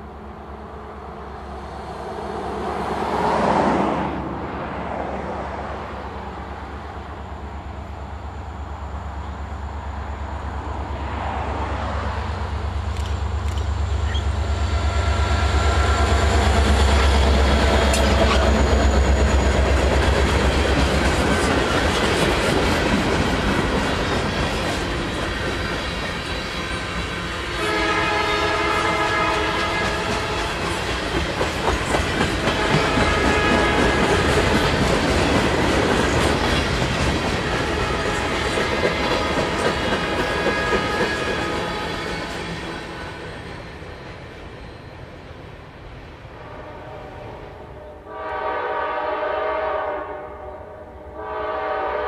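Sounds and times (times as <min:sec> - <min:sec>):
diesel locomotive engine rumbling: 0:00.0 - 0:49.8
train horn: 0:14.7 - 0:16.6, 0:17.8 - 0:19.0, 0:27.5 - 0:30.7, 0:32.4 - 0:34.4, 0:37.4 - 0:38.6, 0:40.1 - 0:42.1, 0:46.4 - 0:52.0
train wheels clacking over rail joints: 0:29.1 - 0:42.7.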